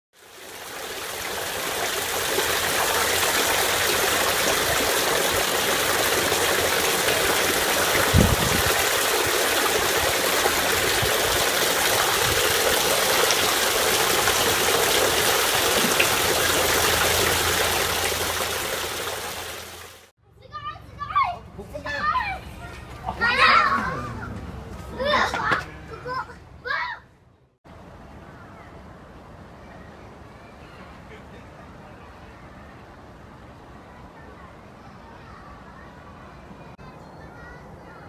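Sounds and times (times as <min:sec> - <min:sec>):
water splashing into basin: 0:00.2 - 0:20.1.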